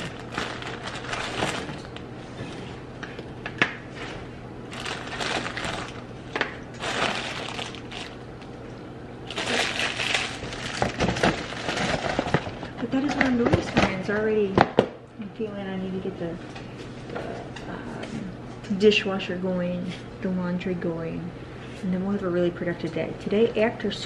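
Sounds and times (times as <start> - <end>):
rustling and crinkling: 0.0 - 14.3
steady low hum: 0.0 - 24.0.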